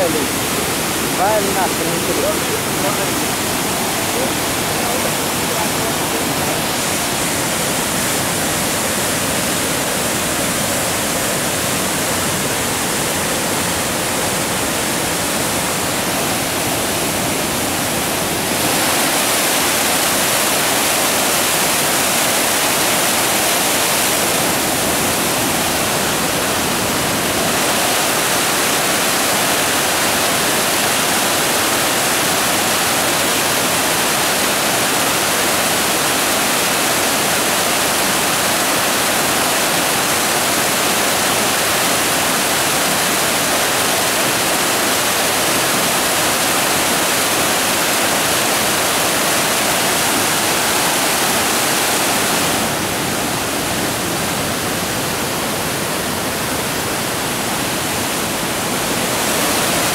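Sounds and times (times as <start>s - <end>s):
river rushing through rapids: 0.0s - 59.9s.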